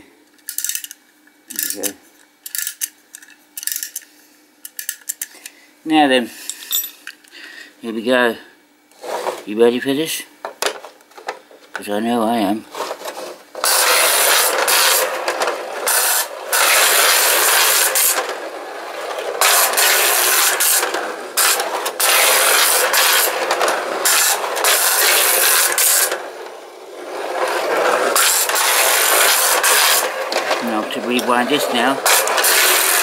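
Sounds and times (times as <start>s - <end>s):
clockwork toy cars on tin track: 12.9s - 33.0s.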